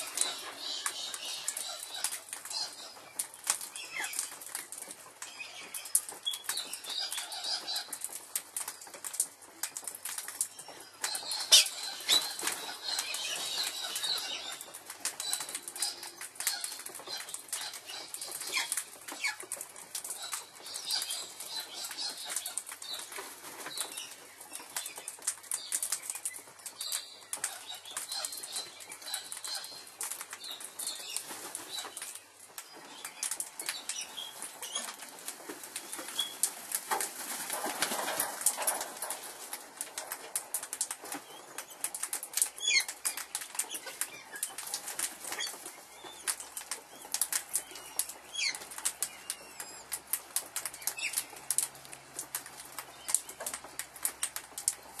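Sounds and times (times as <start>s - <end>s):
bird chirps: 10.5s - 19.4s
dense rapid crackling and rustling: 29.7s - 49.2s.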